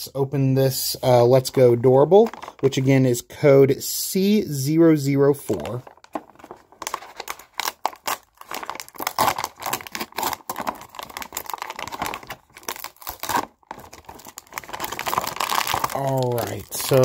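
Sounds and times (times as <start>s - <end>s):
foil seal tearing and crinkling: 5.8s - 17.0s.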